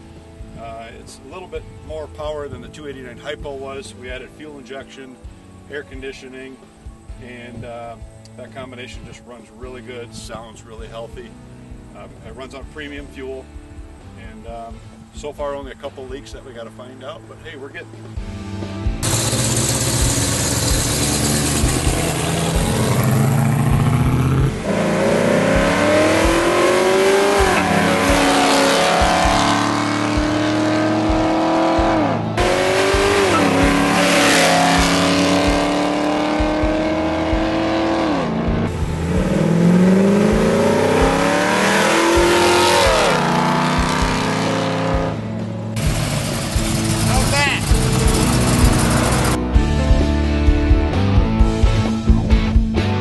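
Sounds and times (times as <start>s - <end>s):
car engine rumbling and accelerating: 18.0s - 53.0s.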